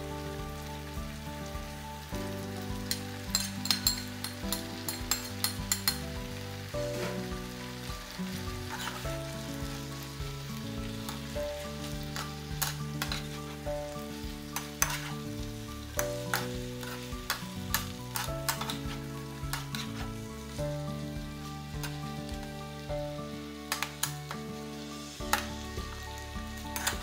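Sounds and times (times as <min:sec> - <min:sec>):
meat and onion sizzling: 0:00.0 - 0:27.0
spatula scraping a pan: 0:08.7 - 0:09.1, 0:12.1 - 0:13.7, 0:14.6 - 0:15.3, 0:16.2 - 0:20.2, 0:26.7 - 0:27.0.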